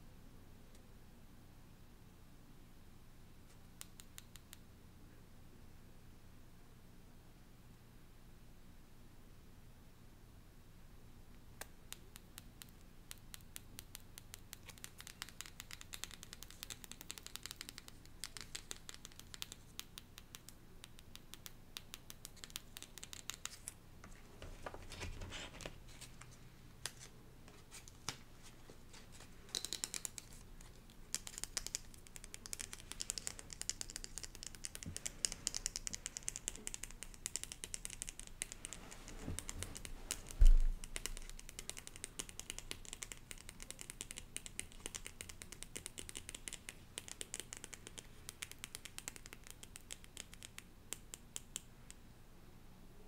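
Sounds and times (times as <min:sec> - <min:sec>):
fingernails tapping and scratching cards: 0:29.2 - 0:50.6.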